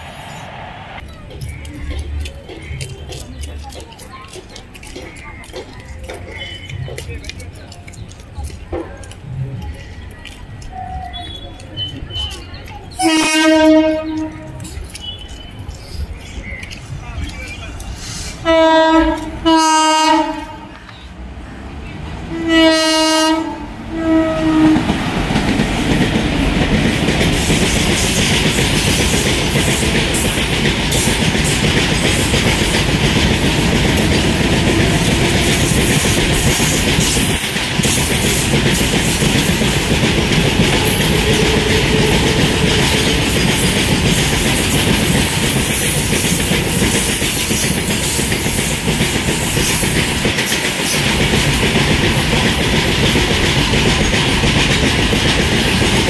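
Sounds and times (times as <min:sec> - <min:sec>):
train wheels rumbling on rails: 0:00.0 - 0:56.0
wheels clicking and clattering: 0:01.0 - 0:19.5, 0:24.8 - 0:56.0
locomotive horn: 0:13.0 - 0:15.3, 0:18.4 - 0:20.8, 0:22.3 - 0:25.0.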